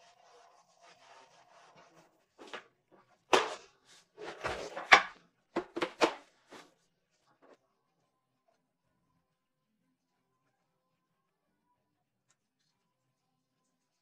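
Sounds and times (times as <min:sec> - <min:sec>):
objects set down on a desk: 0:04.2 - 0:06.7.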